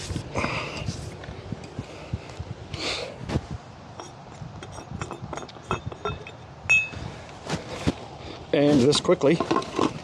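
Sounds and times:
light metallic clinks and ticks: 4.0 - 7.0.

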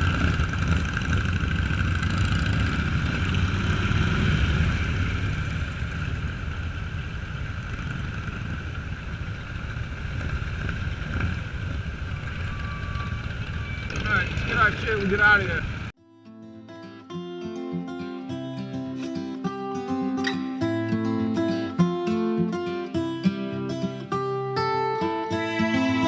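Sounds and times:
motorcycle engine rumbling: 0.0 - 15.9.

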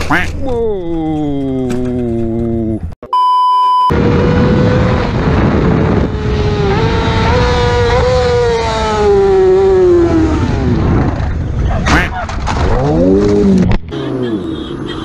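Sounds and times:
motorcycle engine revving high: 3.9 - 12.1
wind rushing over microphone: 3.9 - 12.8.

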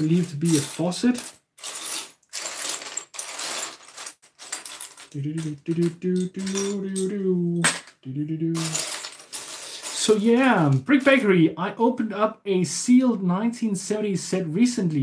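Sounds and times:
plastic bricks clattering: 0.0 - 8.0, 8.6 - 10.8
person humming: 5.2 - 8.8.

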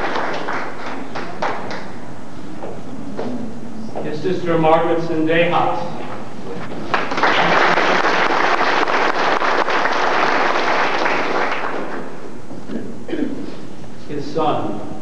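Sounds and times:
audience applauding: 0.0 - 2.0, 6.8 - 12.2.

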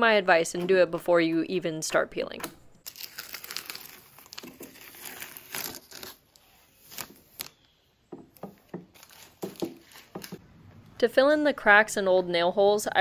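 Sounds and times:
tape peeling off: 2.9 - 7.7, 8.9 - 10.4.

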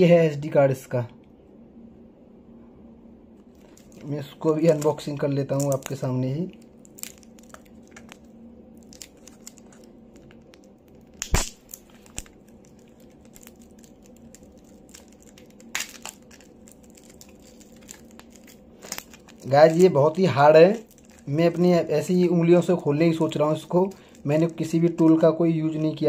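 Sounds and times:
plastic packaging crinkling: 3.5 - 26.0
stiff plastic cracking: 3.6 - 21.9.

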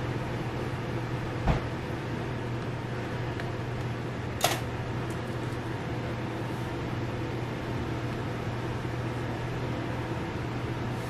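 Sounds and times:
kitchen machinery humming: 0.0 - 11.0.

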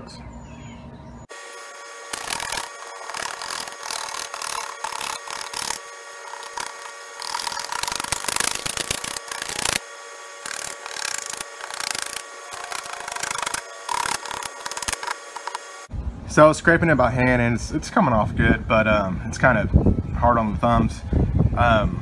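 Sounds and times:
razor blade scraping glass: 2.1 - 15.9.

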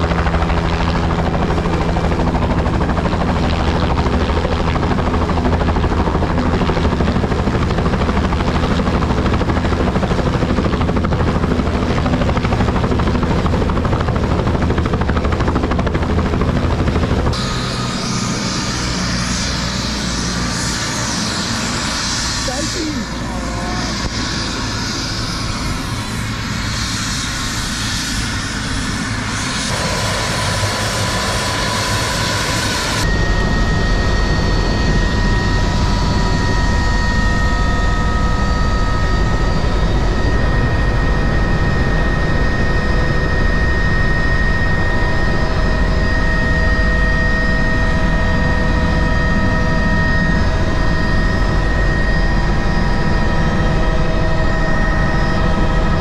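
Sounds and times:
helicopter engine and rotor noise: 0.0 - 56.0.

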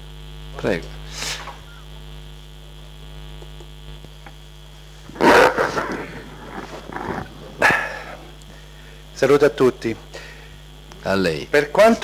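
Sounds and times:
electrical mains hum: 0.0 - 12.0
rustling: 5.1 - 7.8.

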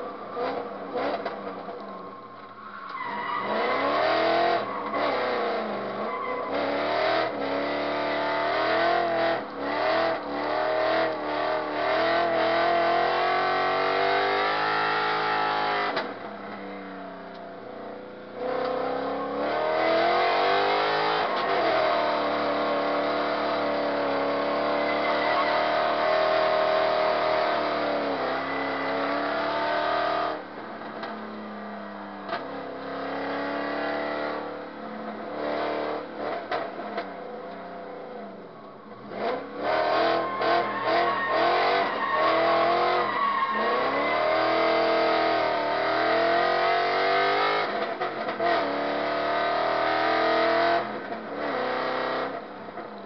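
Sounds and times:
car engine revving: 0.0 - 53.0
tyre squeal: 1.8 - 7.3, 24.2 - 29.2, 39.9 - 45.2.

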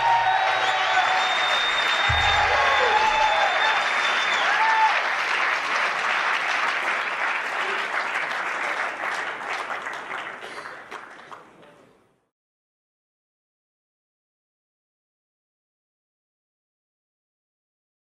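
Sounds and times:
person whooping: 0.0 - 5.0
audience applauding: 0.0 - 11.8.

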